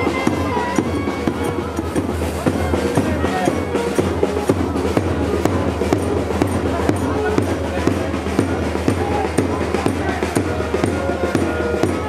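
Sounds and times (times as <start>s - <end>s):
drums struck quickly: 0.0s - 12.0s
large crowd noise: 0.0s - 12.0s.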